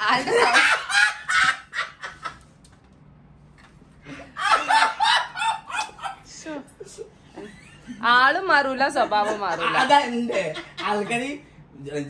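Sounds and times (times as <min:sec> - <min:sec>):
women laughing: 0:00.0 - 0:02.4, 0:04.1 - 0:08.1, 0:09.0 - 0:11.3.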